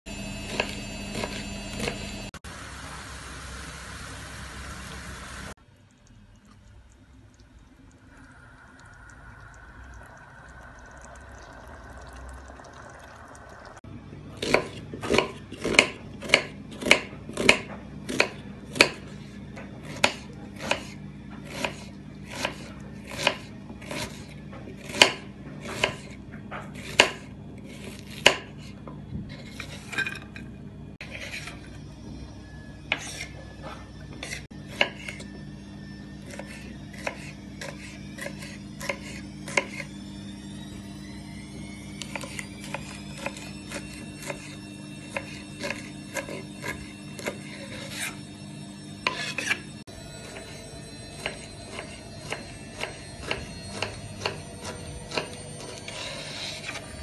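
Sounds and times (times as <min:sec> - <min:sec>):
faint steady hum: 0:02.5 - 0:14.3
knife chopping on cutting board: 0:14.4 - 0:24.2, 0:24.8 - 0:28.6.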